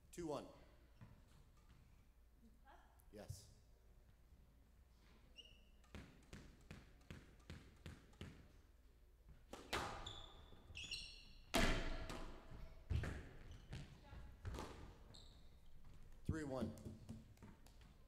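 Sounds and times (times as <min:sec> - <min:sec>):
shoes squeaking on court: 0:05.3 - 0:08.4, 0:09.3 - 0:11.6, 0:12.5 - 0:18.0
ball striking walls: 0:05.8 - 0:08.6, 0:09.3 - 0:10.0, 0:11.5 - 0:15.0, 0:16.6 - 0:18.0
racket hitting ball: 0:05.8 - 0:08.6, 0:09.4 - 0:10.0, 0:11.5 - 0:13.2
squash ball bouncing: 0:05.8 - 0:08.7, 0:09.3 - 0:10.4, 0:11.5 - 0:15.1, 0:15.8 - 0:18.0.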